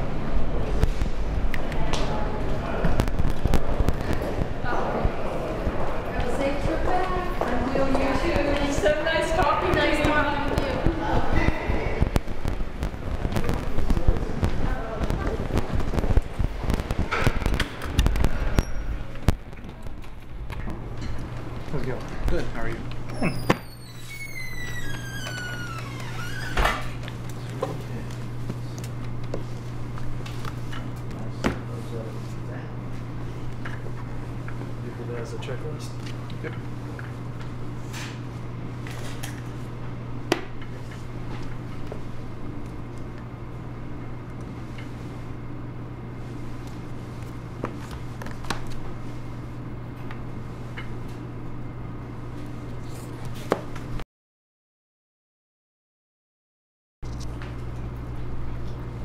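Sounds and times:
steady low hum: 0:00.0 - 0:54.0
falling squeak: 0:23.1 - 0:26.6.

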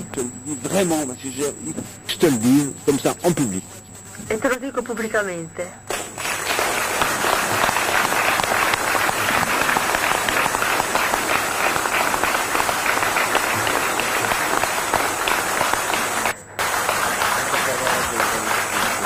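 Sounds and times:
crowd applauding: 0:05.9 - 0:19.0.

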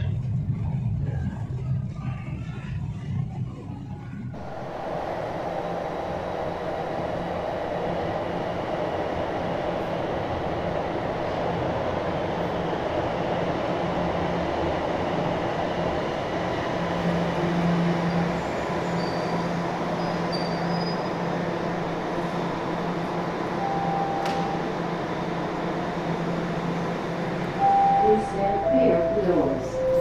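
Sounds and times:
subway train rumbling: 0:00.0 - 0:30.0
short tone: 0:27.6 - 0:30.0.

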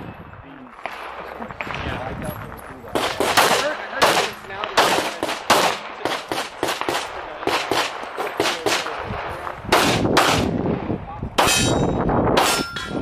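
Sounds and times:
handgun shots: 0:09.8 - 0:10.5, 0:11.4 - 0:12.9.

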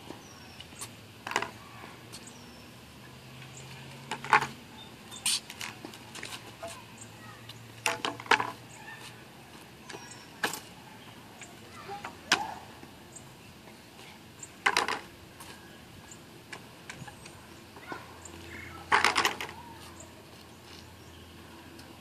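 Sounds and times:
hollow tubes clacking and knocking: 0:07.8 - 0:08.6, 0:14.6 - 0:15.1, 0:18.9 - 0:19.6.

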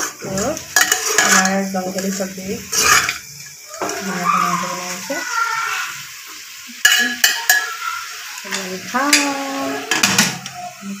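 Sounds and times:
spoon stirring food: 0:00.0 - 0:05.1, 0:06.3 - 0:10.6
food sizzling in a pot: 0:00.0 - 0:11.0
spoon clinking against pot: 0:00.6 - 0:02.1, 0:06.8 - 0:07.8.

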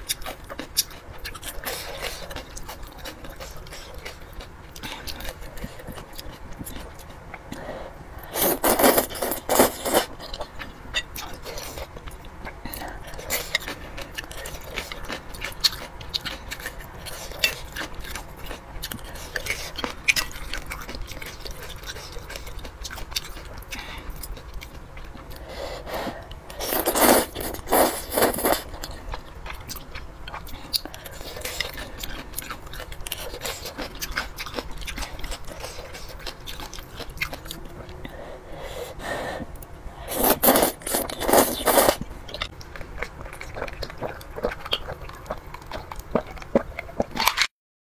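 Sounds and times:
noodle slurping: 0:08.3 - 0:10.1, 0:25.7 - 0:28.7, 0:40.1 - 0:42.0
wet chewing and mouth clicks: 0:08.4 - 0:25.4, 0:26.2 - 0:38.0, 0:39.6 - 0:47.5.

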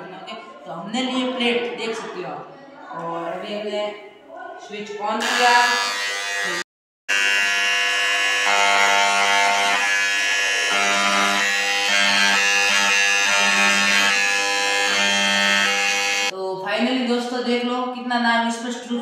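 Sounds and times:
engraving pen buzzing on steel: 0:05.2 - 0:16.3.

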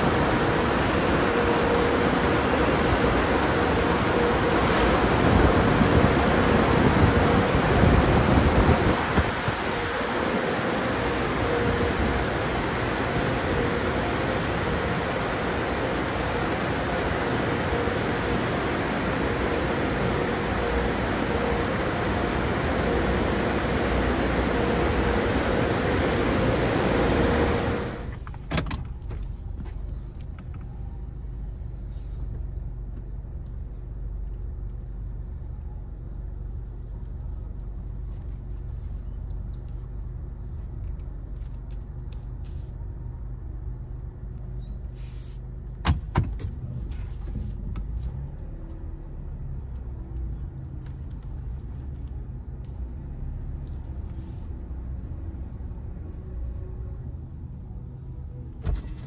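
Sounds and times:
car wash air blowers rushing: 0:00.0 - 0:28.2
steady low rumble: 0:00.0 - 0:45.8.

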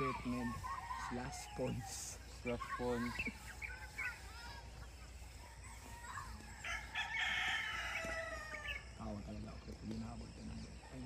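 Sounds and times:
rooster crowing: 0:05.4 - 0:09.0.

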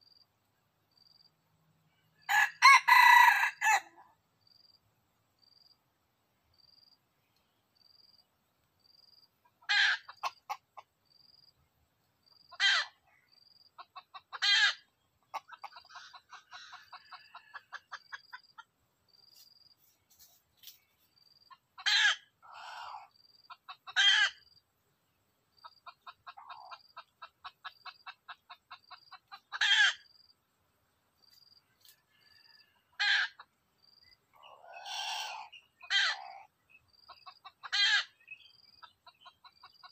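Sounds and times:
junglefowl calling: 0:02.2 - 0:04.1, 0:09.4 - 0:10.9, 0:12.5 - 0:13.2, 0:13.8 - 0:18.7, 0:21.5 - 0:24.5, 0:25.6 - 0:30.1, 0:31.8 - 0:33.6, 0:34.3 - 0:39.9.

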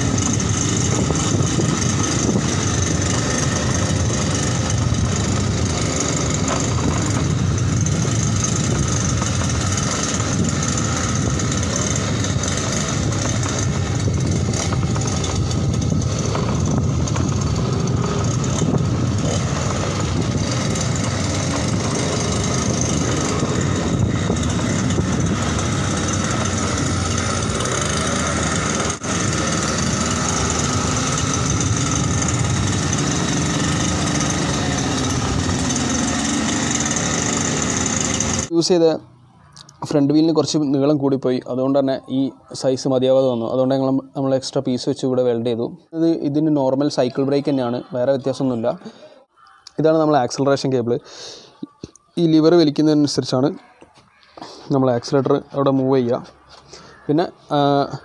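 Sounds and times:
two-stroke engine running: 0:00.0 - 0:39.8, 0:55.0 - 0:58.0.

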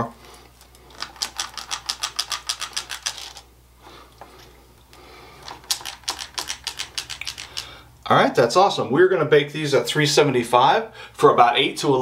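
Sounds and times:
cookie scoop clicking: 0:05.5 - 0:07.7.

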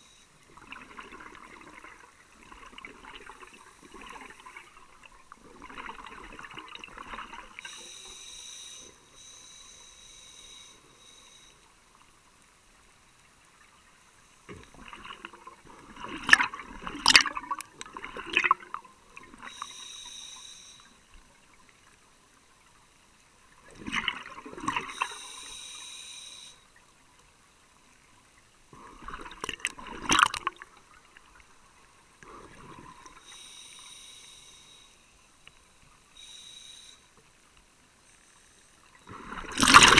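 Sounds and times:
hissing regulator inhale: 0:07.6 - 0:11.8, 0:19.4 - 0:21.1, 0:24.8 - 0:26.6, 0:32.2 - 0:37.2
exhaled bubbles bursting: 0:14.7 - 0:19.5, 0:28.8 - 0:30.7, 0:39.1 - 0:39.9.

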